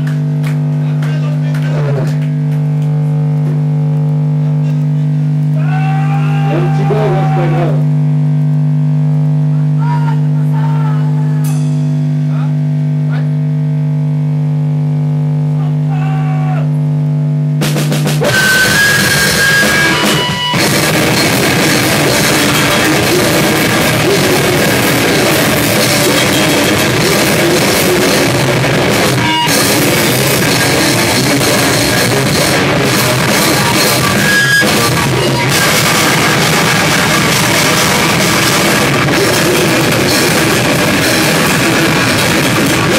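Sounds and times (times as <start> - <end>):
rock band playing loud: 0.0 - 8.0, 17.6 - 42.9
held amplified guitar note: 0.0 - 17.6, 18.2 - 42.9.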